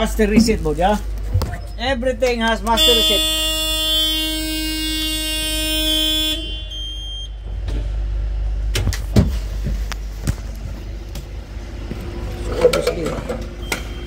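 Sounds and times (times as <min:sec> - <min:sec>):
bus horn blare: 0:02.7 - 0:07.4
short high beep: 0:06.1 - 0:07.4.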